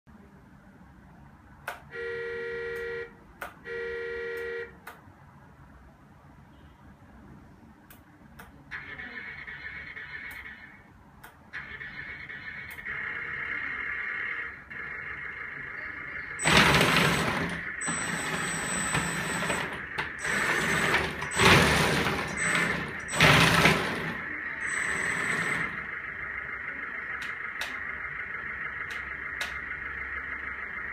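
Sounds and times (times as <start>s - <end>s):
steady high whine: 12.3s - 30.9s
toy dozer tracks whirring and clattering: 16.4s - 26.0s.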